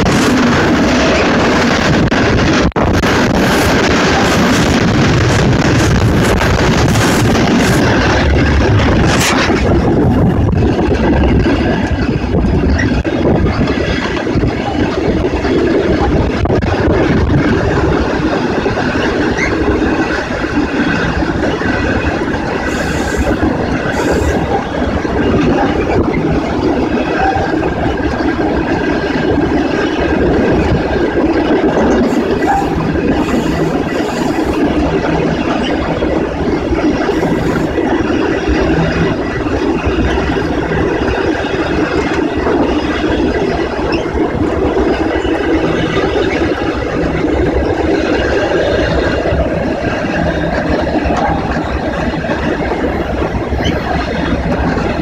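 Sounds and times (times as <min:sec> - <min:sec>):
train wheels on rail: 0:00.0 - 0:55.0.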